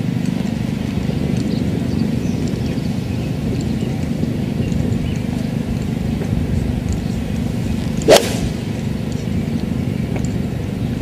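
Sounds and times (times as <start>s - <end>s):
low background rumble: 0.0s - 11.0s
golf club striking ball: 7.8s - 9.2s.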